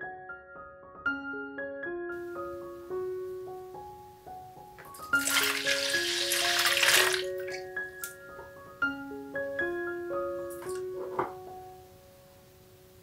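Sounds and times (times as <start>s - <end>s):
piano music: 0.0s - 13.0s
milk pouring into plastic bowl: 4.8s - 8.1s.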